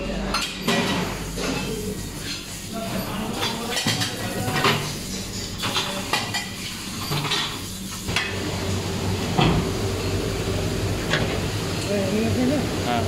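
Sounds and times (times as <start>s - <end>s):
dishes clinking: 0.2s - 8.4s.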